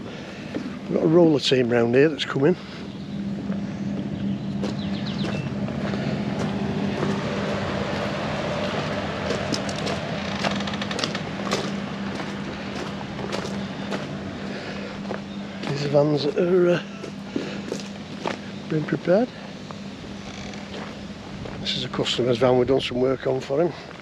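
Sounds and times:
low mechanical hum: 0:00.0 - 0:24.0
footsteps crunching on gravel: 0:00.3 - 0:22.5, 0:23.2 - 0:24.0.

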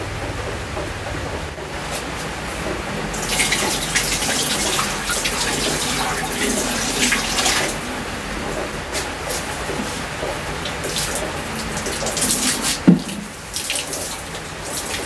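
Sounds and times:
water pouring into glass tank: 0:03.0 - 0:15.0.

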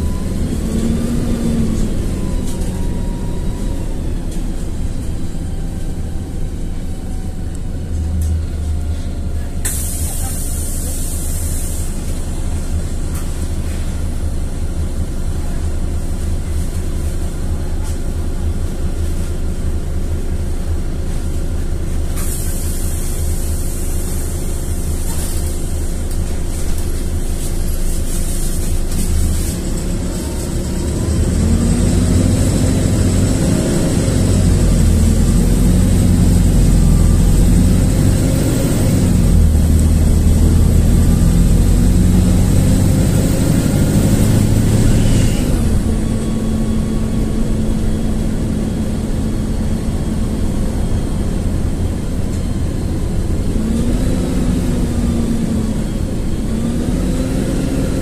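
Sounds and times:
bus diesel engine running: 0:00.0 - 0:58.0
brief air hiss: 0:09.6 - 0:12.1, 0:22.2 - 0:24.0.

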